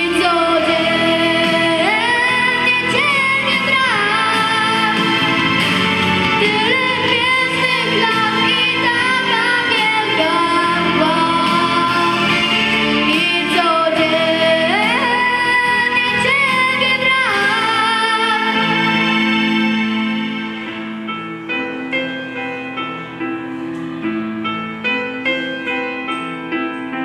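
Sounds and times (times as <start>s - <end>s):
girl singing into a microphone: 0.0s - 5.2s, 6.4s - 19.0s
backing music: 0.0s - 27.0s.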